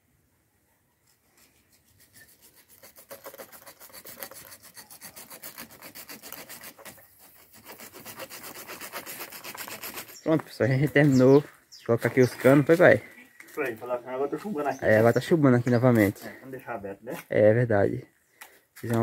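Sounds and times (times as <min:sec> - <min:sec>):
rasping on plastic pipe: 0:01.3 - 0:10.3.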